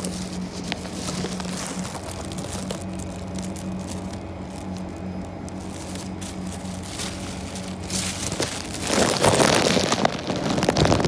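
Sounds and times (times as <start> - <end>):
low train hum: 0.0 - 11.0
plastic bag crinkling: 0.0 - 11.0.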